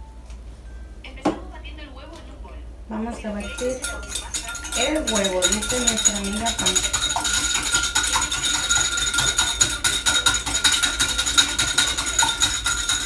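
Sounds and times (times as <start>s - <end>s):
whisks beating egg in bowls: 3.4s - 13.0s.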